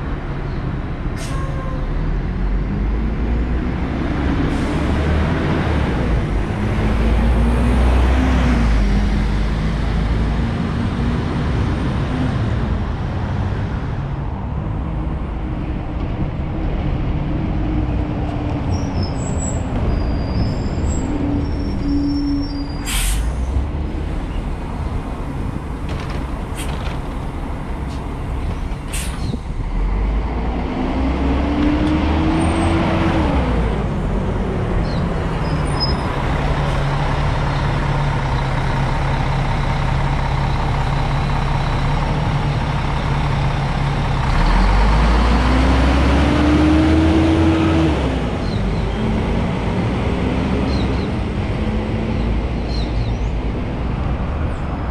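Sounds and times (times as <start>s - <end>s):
bus engines running: 0.0s - 54.9s
sharp air brake hisses: 22.8s - 23.6s, 28.9s - 29.4s.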